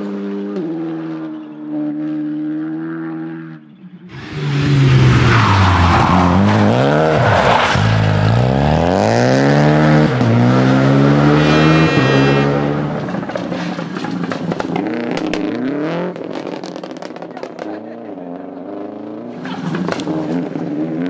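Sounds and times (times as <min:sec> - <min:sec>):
rally car engine revving hard: 0:00.0 - 0:13.4.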